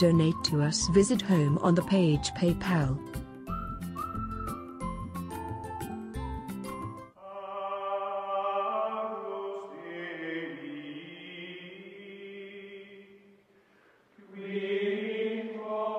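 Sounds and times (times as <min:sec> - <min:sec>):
chant-like music tones: 0:07.2 - 0:13.2, 0:14.2 - 0:15.9.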